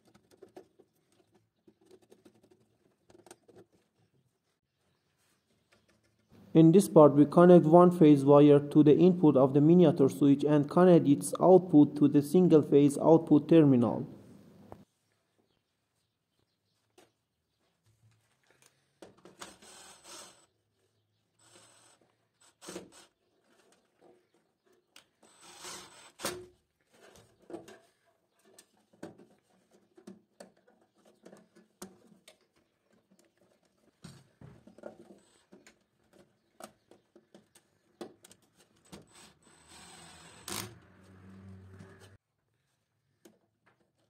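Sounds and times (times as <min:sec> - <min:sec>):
cordless drill running: 0:19.5 - 0:20.5, 0:39.1 - 0:40.7.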